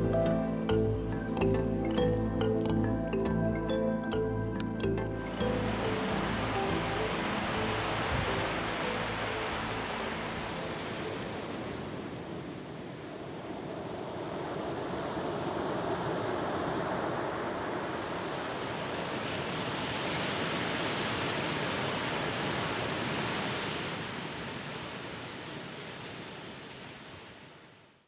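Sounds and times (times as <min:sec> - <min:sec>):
ocean surf breaking: 0:05.1 - 0:13.3.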